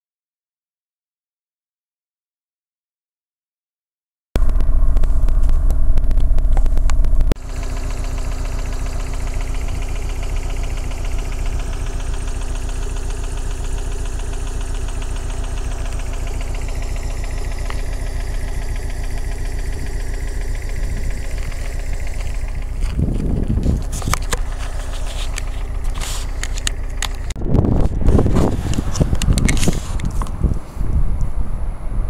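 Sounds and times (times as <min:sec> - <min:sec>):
low bump: 0:04.4 - 0:07.4, 0:14.3 - 0:31.2
car engine idling: 0:04.4 - 0:31.3.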